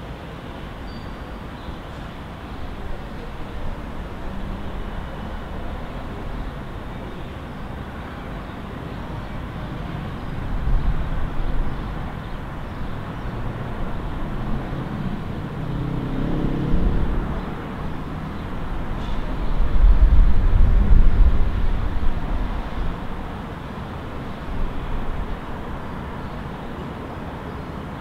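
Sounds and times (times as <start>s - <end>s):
city road traffic: 0.0s - 28.0s
vehicle passing: 13.0s - 18.9s.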